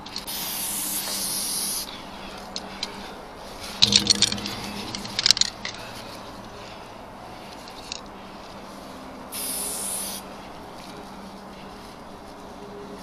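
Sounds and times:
spray paint hissing: 0:00.3 - 0:01.9, 0:09.4 - 0:10.2.

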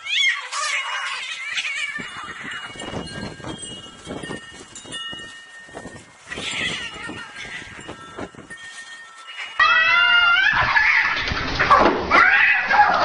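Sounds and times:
cats scuffling on grass: 0:00.0 - 0:11.2
faint ringing tones: 0:02.0 - 0:10.1
cat yowl: 0:09.6 - 0:11.2, 0:12.1 - 0:13.0.

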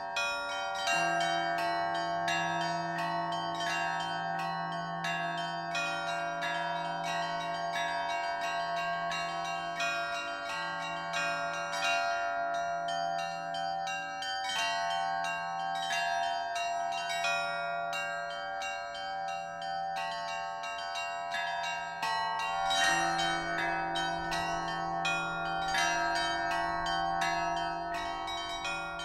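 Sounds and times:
small high bells struck rapidly: 0:20.8 - 0:29.0
middle bells ringing: 0:22.1 - 0:29.0.

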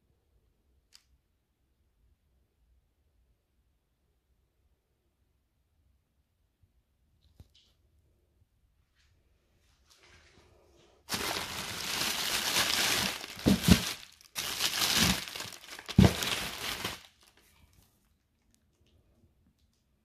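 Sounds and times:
paper wrapping crinkling: 0:11.1 - 0:17.9
dull thumps: 0:12.9 - 0:14.0, 0:14.8 - 0:16.9.

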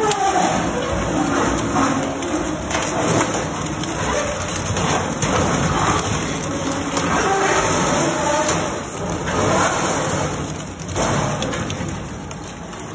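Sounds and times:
shredder crunching metal: 0:00.0 - 0:12.5.

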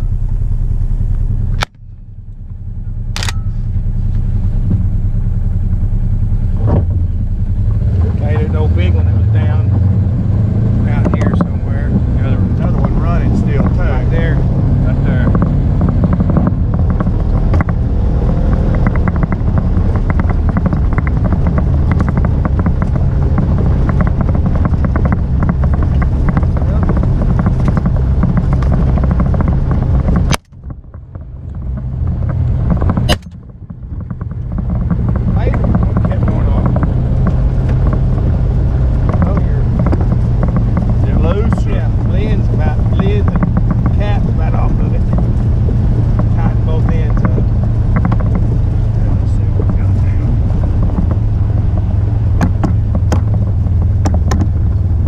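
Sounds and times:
vehicle engine and road rumble: 0:00.0 - 0:55.0
wind noise: 0:03.1 - 0:55.0
rapid clicks: 0:15.1 - 0:55.0.

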